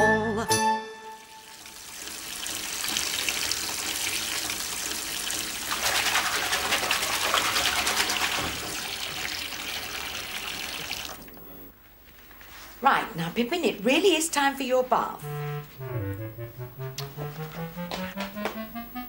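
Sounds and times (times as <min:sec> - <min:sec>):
tap water running into bathtub: 0:01.3 - 0:11.5.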